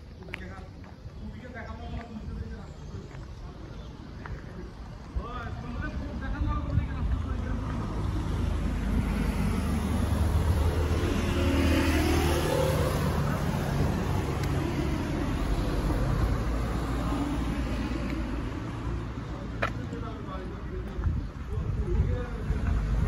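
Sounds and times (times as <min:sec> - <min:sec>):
steady traffic noise: 0:00.0 - 0:23.0
car passing by: 0:07.2 - 0:19.3.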